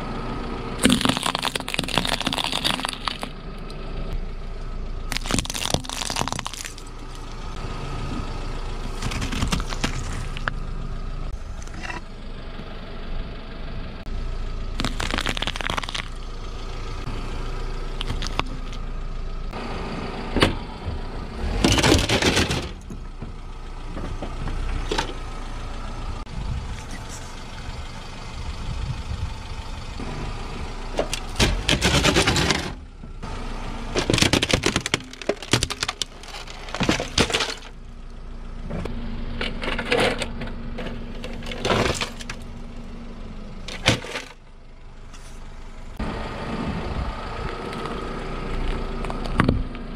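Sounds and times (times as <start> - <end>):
car engine running: 0.0 - 49.9
tyre crushing objects: 0.8 - 3.3, 5.1 - 6.9, 8.9 - 10.5, 14.8 - 16.1, 18.0 - 18.8, 31.1 - 32.8, 34.0 - 37.8.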